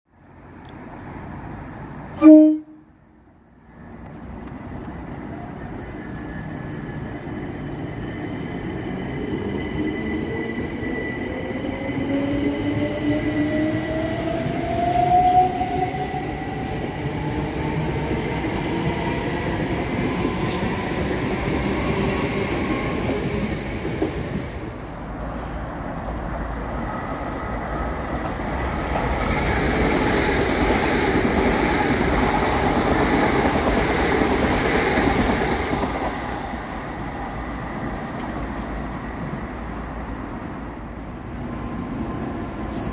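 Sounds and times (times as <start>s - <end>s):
train horn toot: 2.2s - 2.9s
train wheels rumbling on rails: 4.0s - 40.4s.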